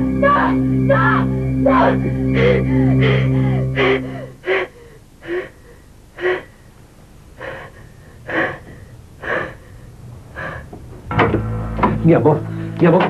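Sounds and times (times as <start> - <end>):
woman whimpering: 2.2 - 6.6
woman gasping for breath: 2.3 - 6.7.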